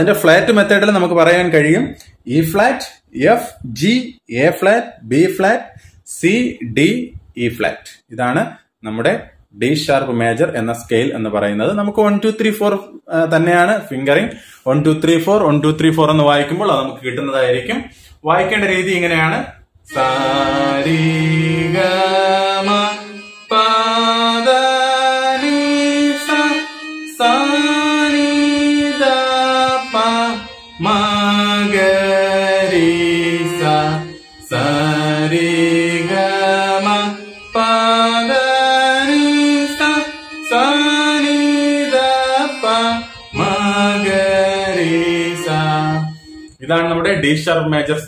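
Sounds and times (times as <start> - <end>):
electronic keyboard notes: 19.9 - 47.1
man singing scale: 19.9 - 47.2.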